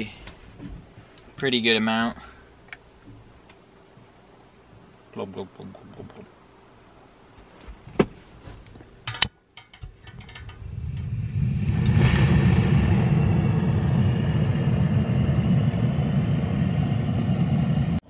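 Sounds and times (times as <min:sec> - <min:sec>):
gas burner flame roaring: 0:09.9 - 0:18.0.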